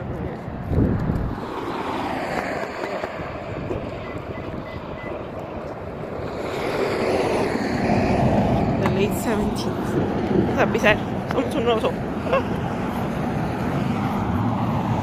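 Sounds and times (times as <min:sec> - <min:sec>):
road traffic: 0:00.0 - 0:15.0
wind on microphone: 0:00.0 - 0:15.0.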